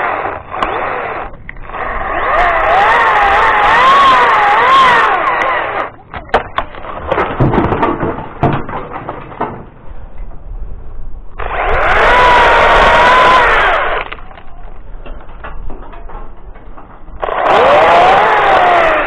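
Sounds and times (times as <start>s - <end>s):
chainsaw running at high revs: 0.0s - 6.0s, 11.4s - 14.2s, 17.2s - 19.0s
knocks and clatter: 6.1s - 10.5s, 14.1s - 17.8s.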